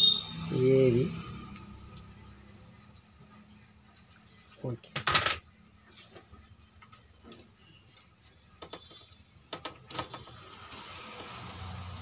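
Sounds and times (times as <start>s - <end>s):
cables clicking and rattling: 6.1s - 11.4s.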